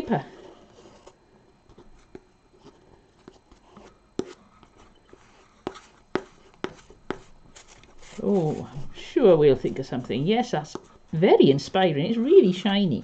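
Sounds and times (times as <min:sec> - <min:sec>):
pencil tapping and scratching paper: 0:00.6 - 0:08.2, 0:10.5 - 0:11.0.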